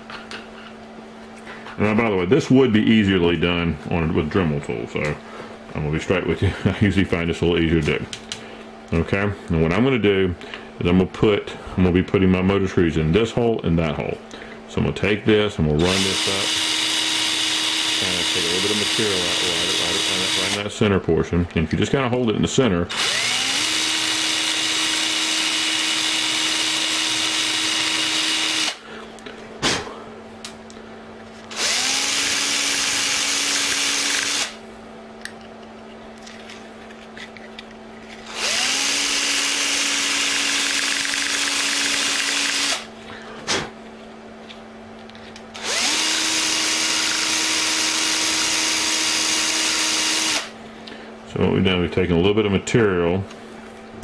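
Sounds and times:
electric drill drilling plastic: 0:15.8 - 0:20.7, 0:22.9 - 0:28.8, 0:31.5 - 0:34.6, 0:38.3 - 0:42.9, 0:45.6 - 0:50.5.

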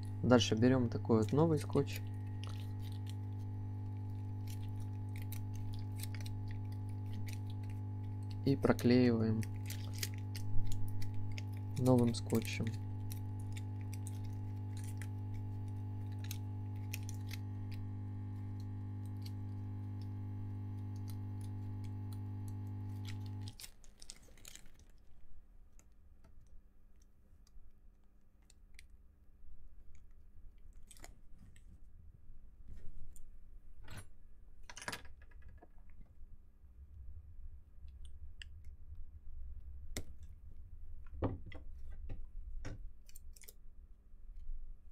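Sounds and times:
steady low hum: 0:00.0 - 0:23.6
adhesive tape crinkling in plastic bag: 0:00.2 - 0:27.1, 0:29.9 - 0:31.6, 0:43.0 - 0:43.6.

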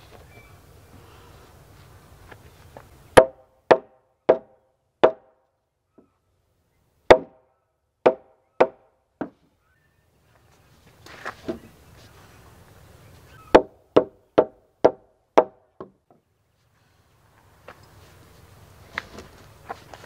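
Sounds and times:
hammer knocking on wooden log: 0:03.2 - 0:05.3, 0:07.1 - 0:07.4, 0:08.0 - 0:09.4, 0:13.5 - 0:16.2.

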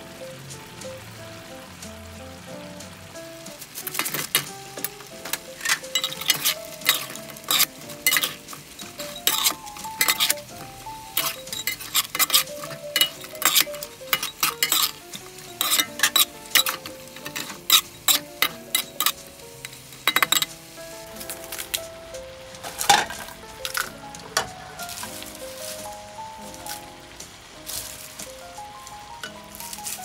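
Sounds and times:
sauce sizzling: 0:00.0 - 0:30.0
metal utensils scraping a wok: 0:03.7 - 0:21.8, 0:22.6 - 0:26.9.

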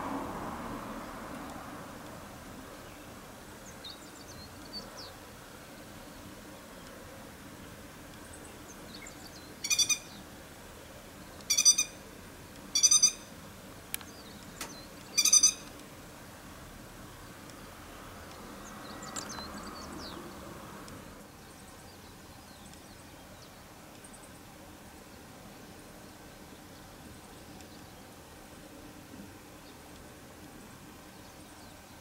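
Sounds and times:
lapwing rattling calls: 0:08.9 - 0:10.2, 0:11.4 - 0:12.0, 0:12.7 - 0:13.4, 0:14.1 - 0:15.8.

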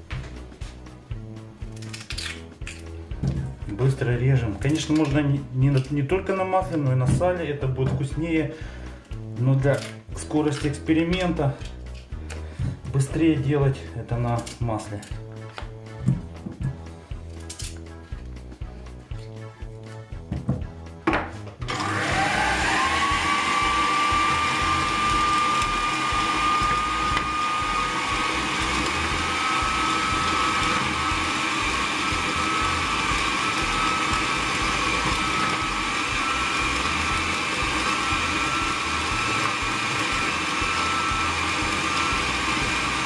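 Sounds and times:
food processor motor whine: 0:21.6 - 0:43.0.

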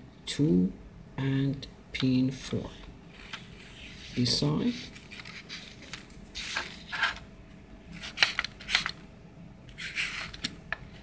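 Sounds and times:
marker scratching on paper: 0:03.2 - 0:05.8, 0:09.8 - 0:10.4.

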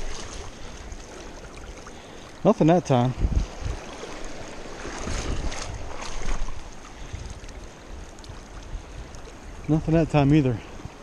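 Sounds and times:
water splashing around net: 0:00.0 - 0:02.0, 0:03.4 - 0:07.5
person wading in water: 0:00.0 - 0:09.5
creek water running: 0:00.0 - 0:11.0
wind rumble on microphone: 0:03.0 - 0:11.0.

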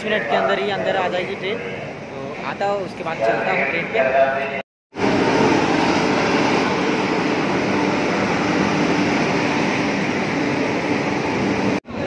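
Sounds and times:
train wheels on rails: 0:04.9 - 0:11.8.

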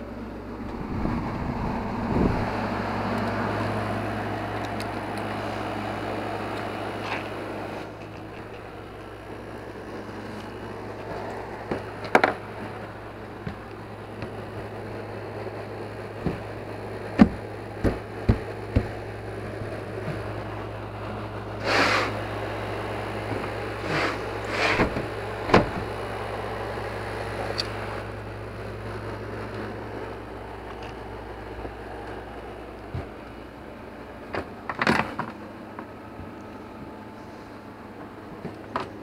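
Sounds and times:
steady low hum: 0:00.0 - 0:39.0
sharp knocks and clicks: 0:17.2 - 0:19.0.

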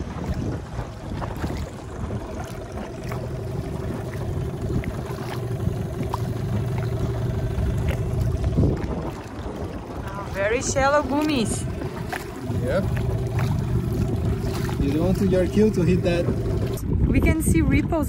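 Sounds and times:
boat motor running: 0:00.0 - 0:18.0.

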